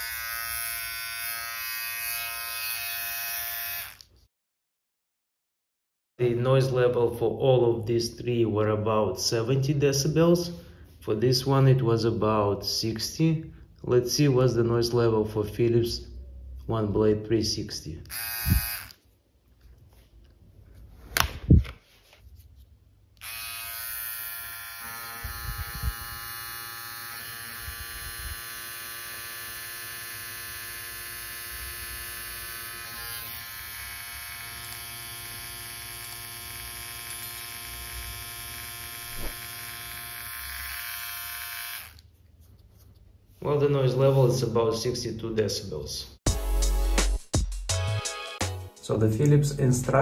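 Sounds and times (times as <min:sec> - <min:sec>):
electric trimmer buzzing: 0:00.0 - 0:04.1, 0:18.1 - 0:19.0, 0:23.2 - 0:42.0.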